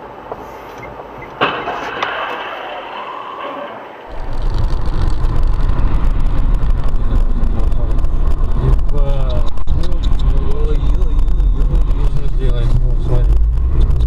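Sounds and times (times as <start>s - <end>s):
car crash: 1.4s - 14.0s
scraping noise: 1.6s - 14.0s
car driving on wet road: 4.1s - 14.0s.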